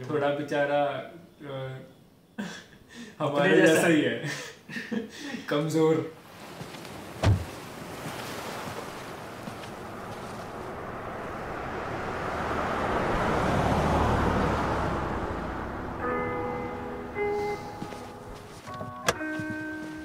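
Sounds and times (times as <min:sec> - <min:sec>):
wind and surf rushing: 0:06.2 - 0:18.7
dull thump: 0:07.2 - 0:07.6.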